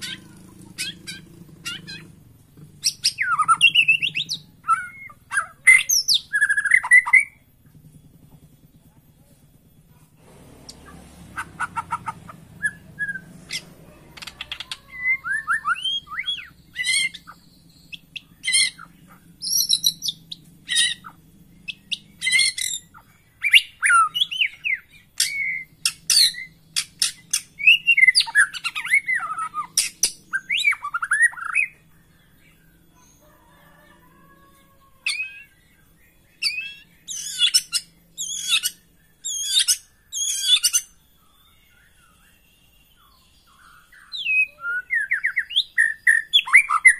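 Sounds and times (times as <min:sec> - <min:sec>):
songbird singing whistled phrases: 0:02.8 - 0:07.4, 0:14.2 - 0:33.2, 0:35.0 - 0:46.9.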